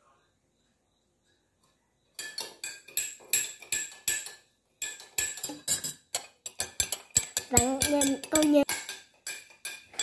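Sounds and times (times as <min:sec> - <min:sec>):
metal spoon clinking in glass jar: 0:02.2 - 0:10.0.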